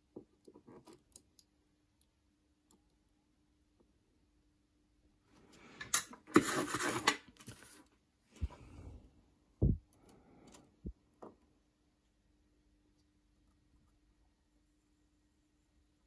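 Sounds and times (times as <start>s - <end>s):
rustling and scraping: 5.4s - 8.9s.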